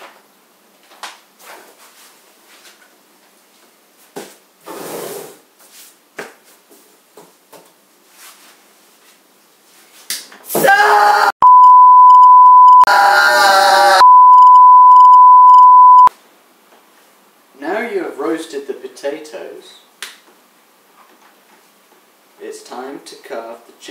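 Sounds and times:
high-pitched steady beep: 0:11.4 - 0:12.9, 0:14.0 - 0:16.1.

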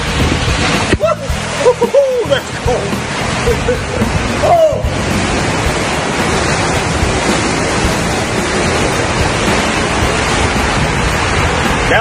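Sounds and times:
water rushing through slide tube: 0:00.0 - 0:12.0
wind noise on microphone: 0:00.0 - 0:12.0.

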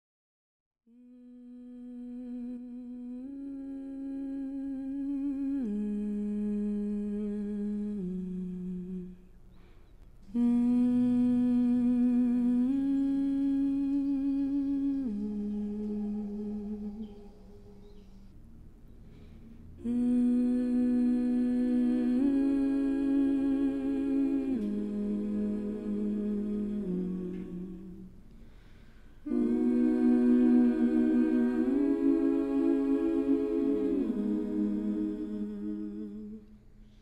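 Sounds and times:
person humming: 0:10.3 - 0:18.1, 0:19.8 - 0:28.2, 0:29.3 - 0:36.4.

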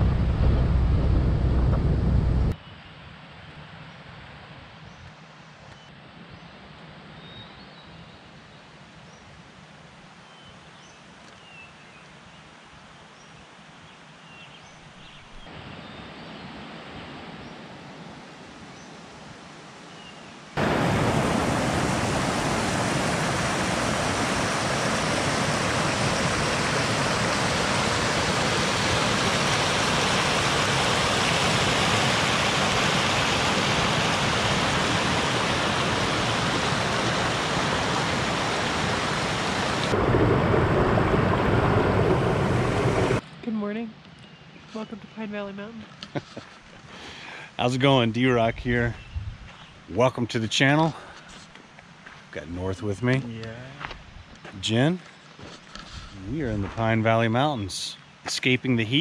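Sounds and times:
mountain creek rushing: 0:20.6 - 0:43.2.

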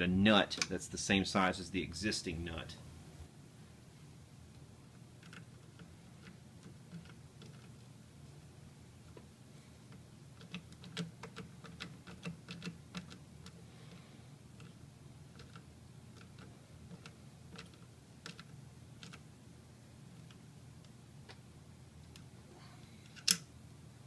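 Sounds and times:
nut driver metallic clicks: 0:23.1 - 0:23.5.

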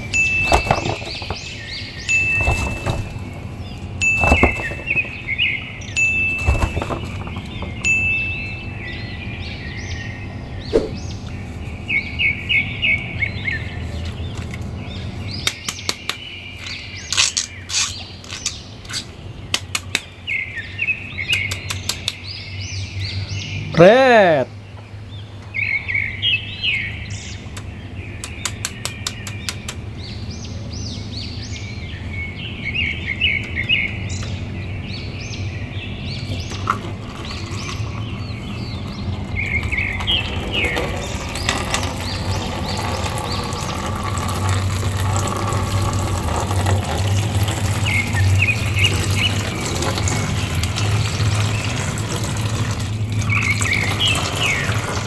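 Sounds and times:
small birds chirping: 0:00.0 - 0:55.0
water pouring and splashing into basin: 0:36.5 - 0:38.3, 0:39.2 - 0:55.0.

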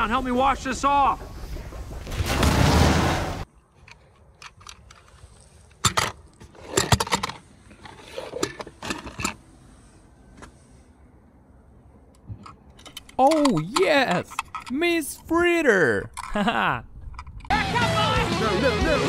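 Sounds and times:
toy cars clattering: 0:12.2 - 0:15.3.

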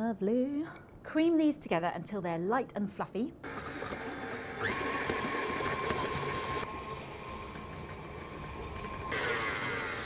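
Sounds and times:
stand mixer motor whining: 0:03.5 - 0:10.0.

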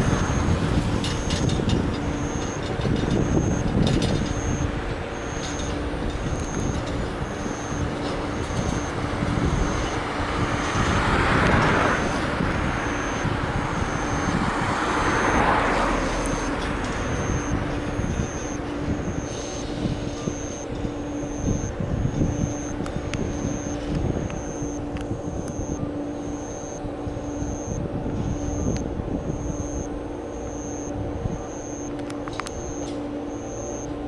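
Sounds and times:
streetcar wheels on rails: 0:00.0 - 0:34.0
faint repeating high tone: 0:16.2 - 0:33.9.

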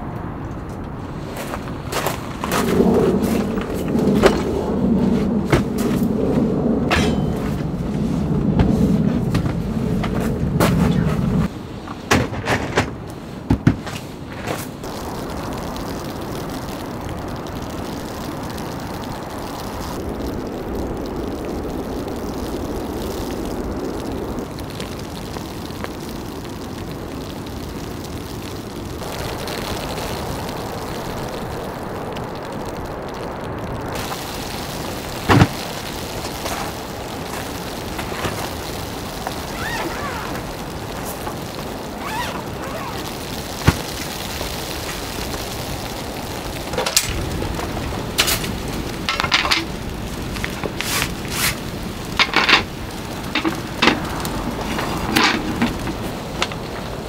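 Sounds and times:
steady rain hiss: 0:00.0 - 0:57.0
knocks and clatters: 0:11.9 - 0:14.7.

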